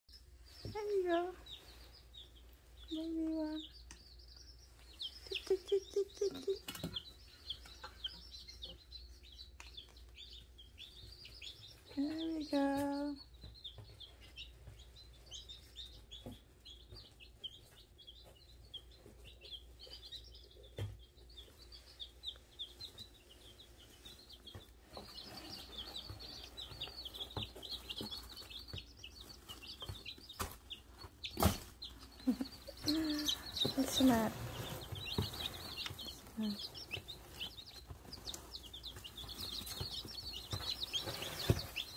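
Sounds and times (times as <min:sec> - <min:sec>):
chicks peeping: 0:00.1 - 0:41.9
person's voice: 0:00.7 - 0:01.4, 0:02.9 - 0:03.7, 0:05.3 - 0:06.6, 0:11.9 - 0:13.2, 0:32.4 - 0:34.5, 0:36.4 - 0:36.7.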